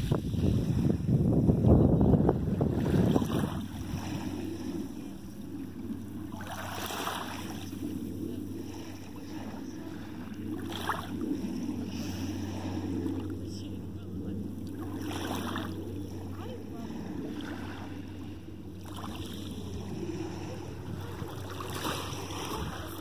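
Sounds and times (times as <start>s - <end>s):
steady low drone: 0.0s - 23.0s
water lapping at shoreline: 0.0s - 23.0s
wind rumbling on microphone: 0.0s - 23.0s.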